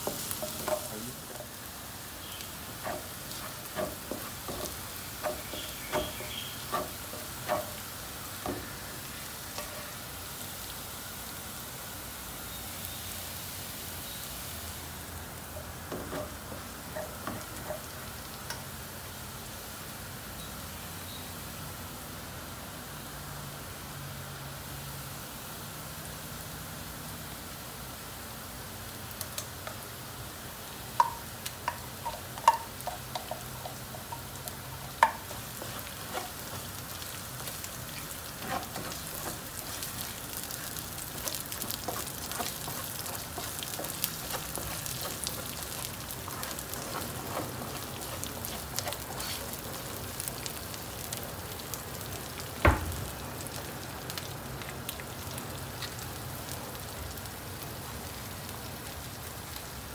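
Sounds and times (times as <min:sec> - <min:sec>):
food sizzling in hot oil: 0:00.0 - 0:59.9
loud knock: 0:52.7 - 0:53.1.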